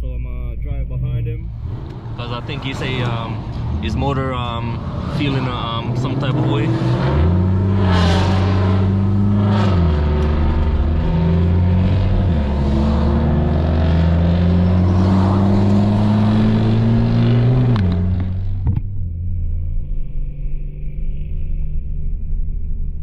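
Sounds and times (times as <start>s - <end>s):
car engine accelerating through gears: 1.4s - 19.3s.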